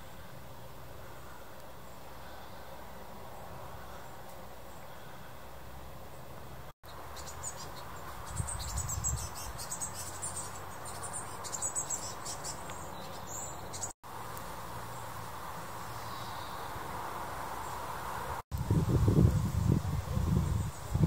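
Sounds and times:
outdoor hiss: 0:09.5 - 0:21.0.

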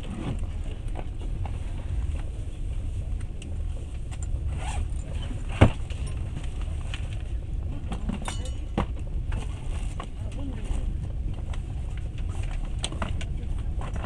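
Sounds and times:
train rumbling inside carriage: 0:00.0 - 0:14.0.

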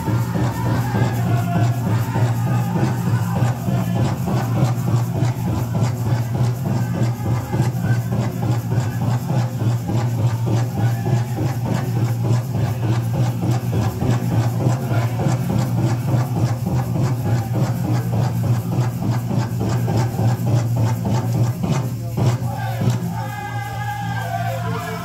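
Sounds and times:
drum beating fast rhythm: 0:00.0 - 0:25.0
low steady drone: 0:00.0 - 0:25.0.

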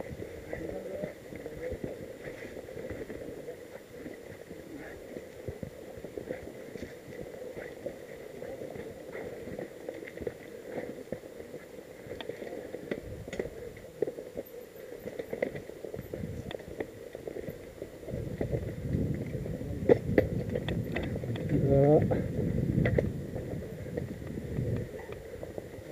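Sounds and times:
mountain bike rattling: 0:00.0 - 0:25.9.

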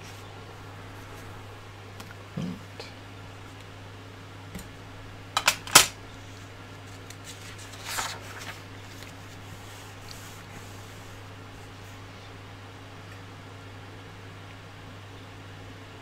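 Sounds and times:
low steady hum: 0:00.0 - 0:16.0
paper page turning: 0:06.8 - 0:10.7.

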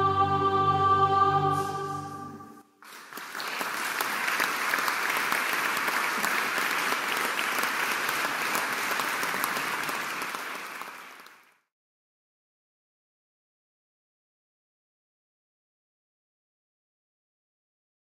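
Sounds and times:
choir and orchestra chord: 0:00.0 - 0:02.7
audience applauding: 0:02.8 - 0:11.7.

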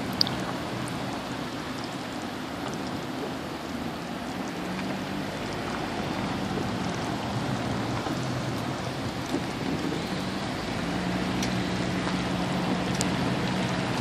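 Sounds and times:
rain on wet pavement: 0:00.0 - 0:14.0.

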